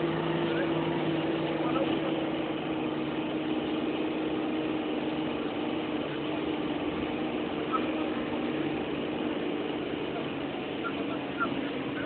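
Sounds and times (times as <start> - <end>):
bus engine running: 0.0 - 12.0
road noise: 0.0 - 12.0.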